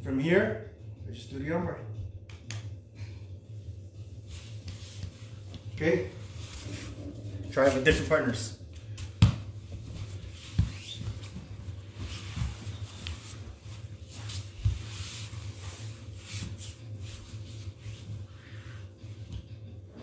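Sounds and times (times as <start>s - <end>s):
steady low hum: 0.0s - 20.0s
bodies shuffling on foam mat: 4.1s - 8.1s, 9.4s - 19.4s.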